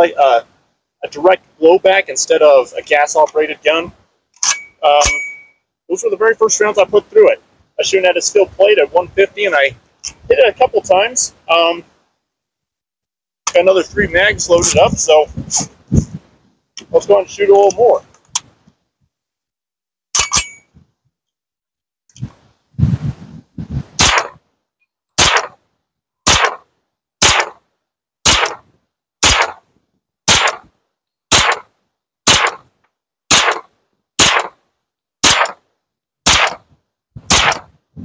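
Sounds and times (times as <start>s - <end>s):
carbine gunshots: 24.0s - 24.4s, 25.2s - 25.6s, 26.3s - 26.6s, 27.2s - 27.6s, 28.3s - 28.6s, 29.2s - 29.6s, 30.3s - 30.7s, 31.3s - 31.7s, 32.3s - 32.6s, 33.3s - 34.6s, 35.2s - 35.6s, 36.3s - 36.6s, 37.3s - 37.7s
gun clicks: 37.3s - 37.7s.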